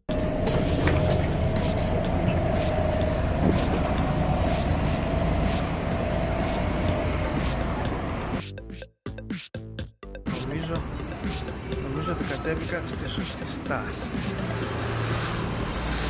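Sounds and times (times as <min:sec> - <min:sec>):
bus engine rumbling: 0:00.0 - 0:08.4.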